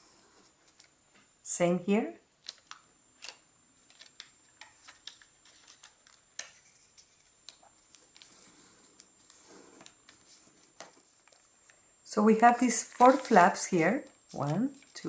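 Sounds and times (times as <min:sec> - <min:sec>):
paper crinkling and clicking: 0:02.4 - 0:11.5, 0:12.7 - 0:15.0
paper sliding rustle: 0:04.8 - 0:11.5, 0:12.6 - 0:13.7.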